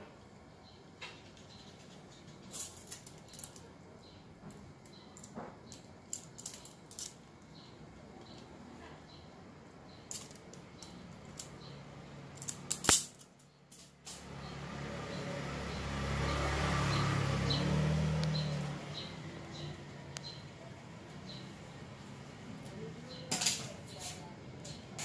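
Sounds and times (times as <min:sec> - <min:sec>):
small clicks of hands handling wiring: 0:04.8 - 0:07.5.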